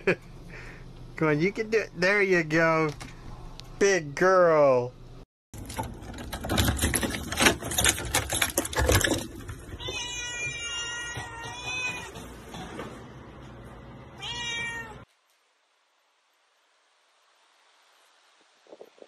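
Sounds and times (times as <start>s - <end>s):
key rattling in a door lock: 5.6s - 9.2s
cat meowing: 9.8s - 12.2s, 14.2s - 15.1s.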